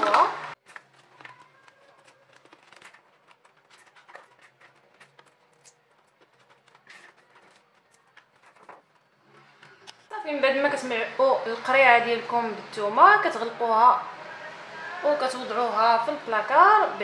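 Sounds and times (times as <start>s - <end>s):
garlic cloves clicking and rustling: 0.6s - 9.1s
plastic bottle crinkling: 0.6s - 10.1s.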